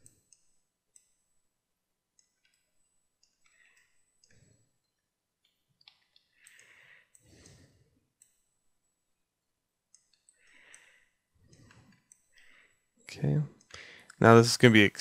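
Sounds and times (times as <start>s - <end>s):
mouse and keyboard clicks: 5.4s - 7.6s.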